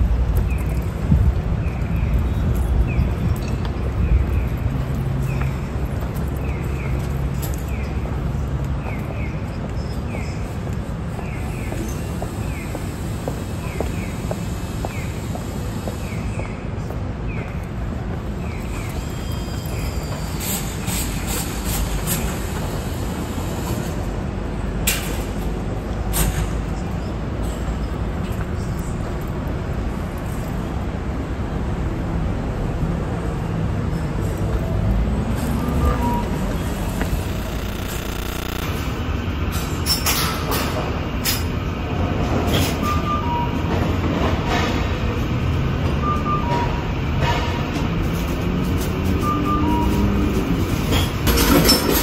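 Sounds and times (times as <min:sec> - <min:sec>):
low traffic rumble: 0:00.0 - 0:42.8
short sharp clicks: 0:36.9 - 0:38.8.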